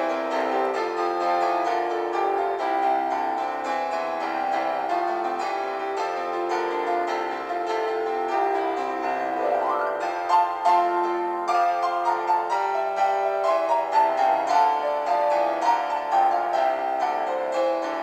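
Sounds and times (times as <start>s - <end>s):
keyboard music: 9.2s - 15.1s.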